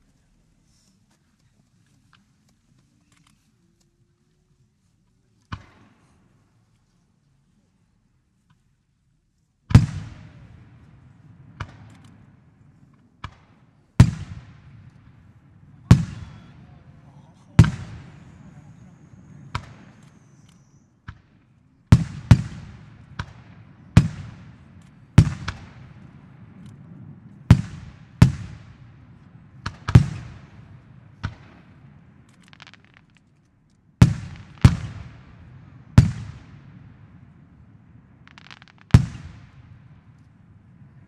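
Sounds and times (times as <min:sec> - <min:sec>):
firework shells bursting: 0:29.3 - 0:36.6, 0:38.2 - 0:40.4.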